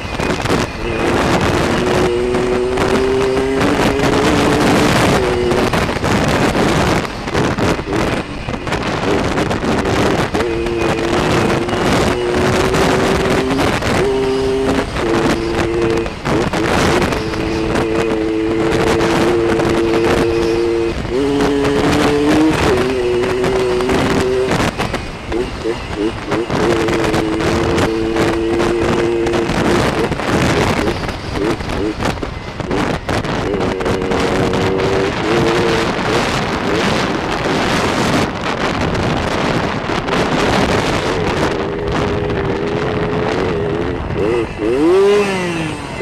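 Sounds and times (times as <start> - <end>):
two-stroke motorcycle engine running: 0.0 - 46.0
wind buffeting microphone: 0.0 - 46.0.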